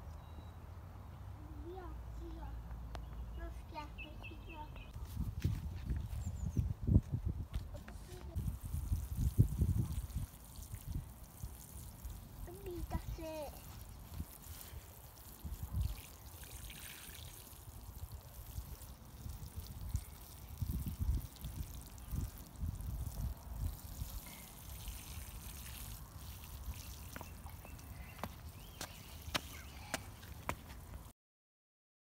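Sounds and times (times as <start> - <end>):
water sprinkling onto soil: 7.9 - 31.1.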